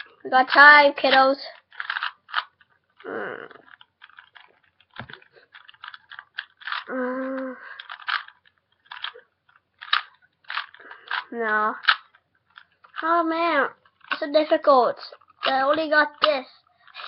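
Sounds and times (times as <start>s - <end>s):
puzzle cube clicking: 0.0s - 17.0s
person humming: 3.0s - 3.6s, 6.9s - 7.7s.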